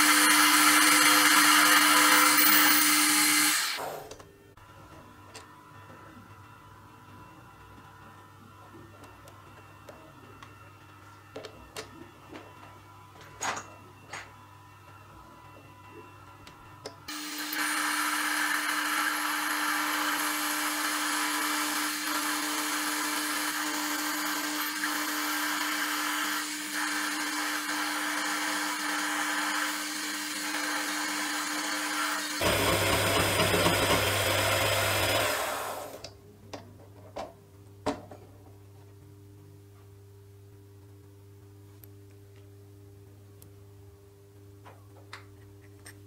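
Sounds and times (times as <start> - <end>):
metal lathe running: 0.0 - 3.8, 17.1 - 36.0.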